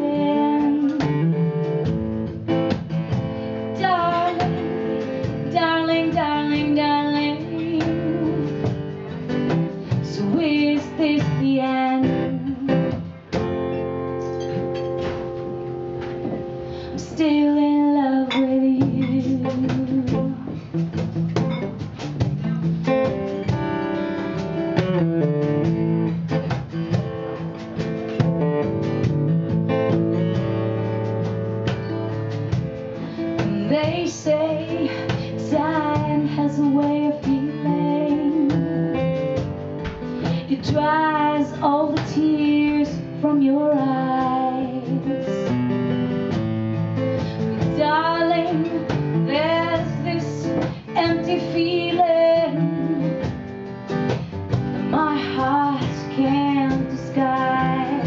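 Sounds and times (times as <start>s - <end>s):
woman singing: 0.0s - 14.0s, 16.7s - 21.0s, 33.0s - 46.2s, 47.2s - 53.5s, 54.1s - 58.0s
acoustic guitar picked and strummed: 0.0s - 58.0s.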